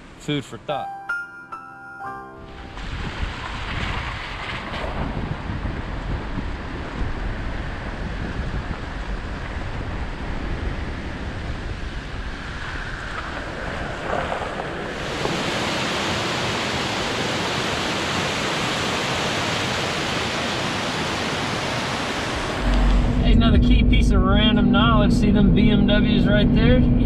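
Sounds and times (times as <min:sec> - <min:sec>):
wind buffeting microphone: 0:02.6 - 0:27.0
stream rushing over rocks: 0:13.9 - 0:22.8.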